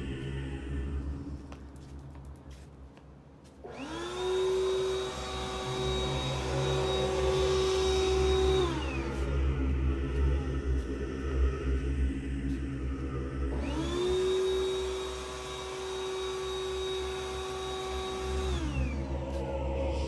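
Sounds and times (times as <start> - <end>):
electric blower motor whine: 3.5 - 20.0
low rumble: 6.2 - 14.6, 18.4 - 20.0.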